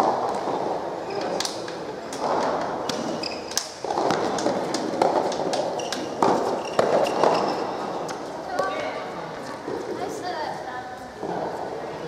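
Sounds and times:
rackets striking ball: 0.0 - 8.8
ball bouncing: 0.0 - 8.9
shoes squeaking on court: 2.2 - 8.8
murmur of voices: 7.7 - 12.0.

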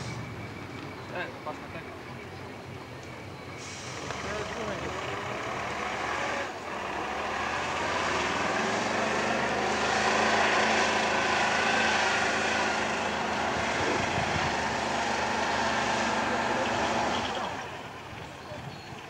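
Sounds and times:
diesel truck engine labouring: 0.0 - 19.0.

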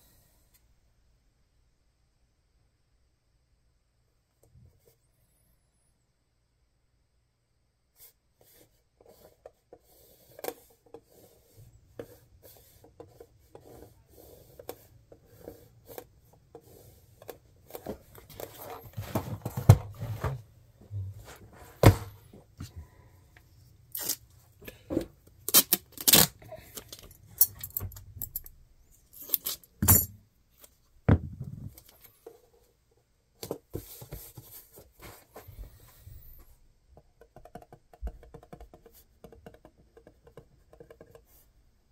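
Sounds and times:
marker scratching and tapping: 8.0 - 18.0, 37.0 - 41.5.

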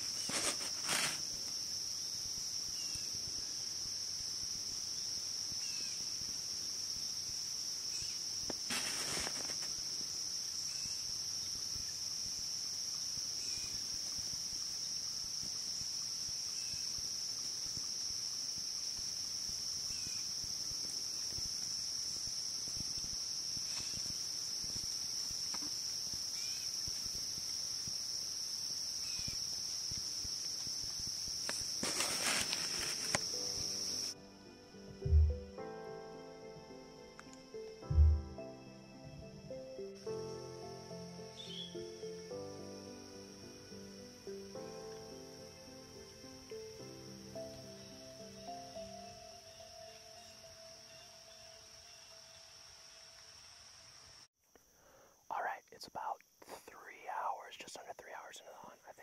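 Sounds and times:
brief rustle: 0.0 - 1.4, 8.6 - 9.8, 31.4 - 33.4
insect chorus: 0.0 - 59.0.

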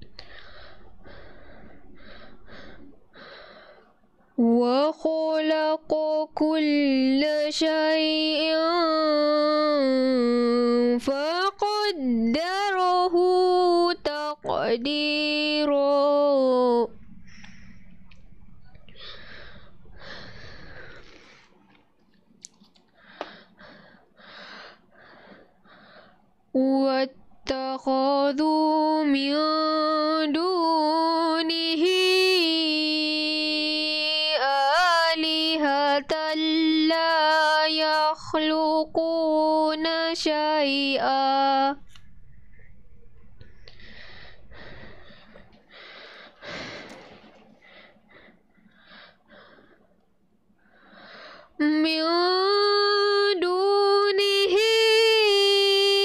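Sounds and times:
faint breathing into microphone: 0.1 - 4.1, 17.1 - 21.8, 22.9 - 26.4, 41.8 - 51.6
girl breathing into microphone: 17.2 - 18.0, 42.4 - 50.0.

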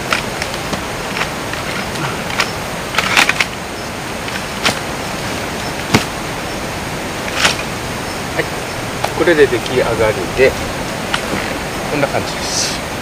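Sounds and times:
steady hiss: 0.0 - 13.0.

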